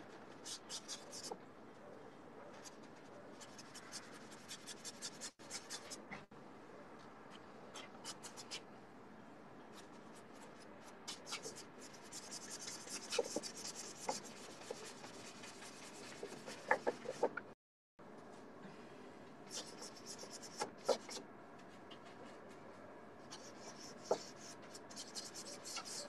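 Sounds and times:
paintbrush scratching on canvas: 2.6 - 6.0, 9.8 - 17.4, 23.3 - 26.0.

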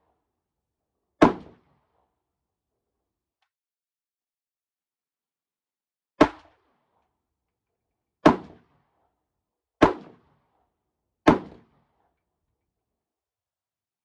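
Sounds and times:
rifle shots: 1.2 - 1.6, 9.8 - 10.3, 11.3 - 11.8.

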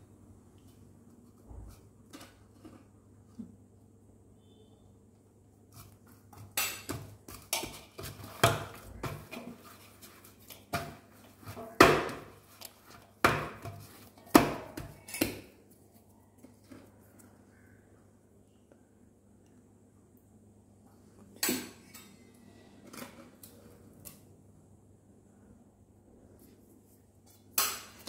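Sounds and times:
hands kneading dough: 5.5 - 17.7.

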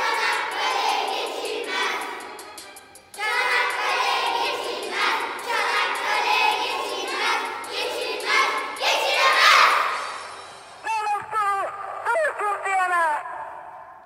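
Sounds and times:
children singing in unison: 0.0 - 2.6, 3.2 - 10.2.

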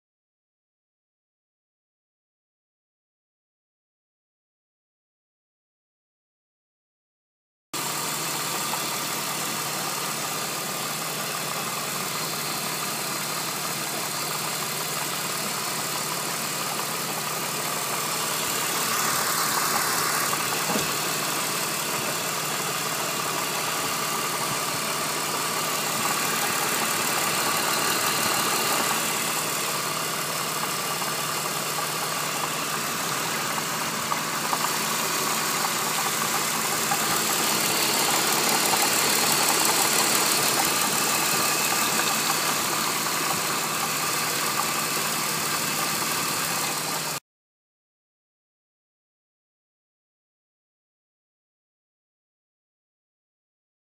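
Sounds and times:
car engine idling: 7.8 - 47.2
engine clattering: 7.8 - 47.2.

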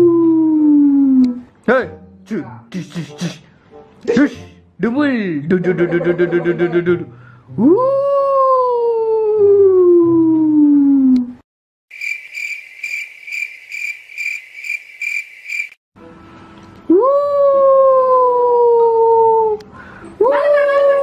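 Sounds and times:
crickets chirping: 11.9 - 15.8.

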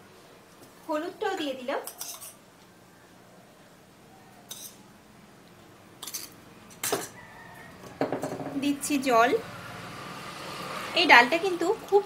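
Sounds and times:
spoon clinking against metal pot: 1.8 - 2.4, 4.5 - 4.8.

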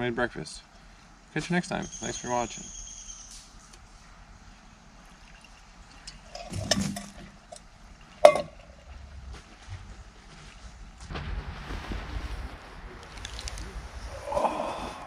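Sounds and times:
scrape and rustle: 3.2 - 4.2.

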